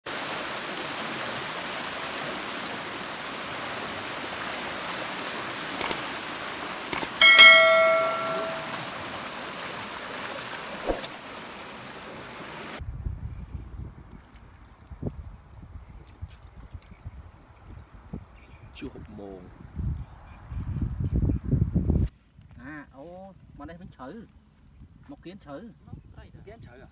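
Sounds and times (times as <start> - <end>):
water rushing: 0.1 - 12.8
bell-like chime: 7.2 - 8.8.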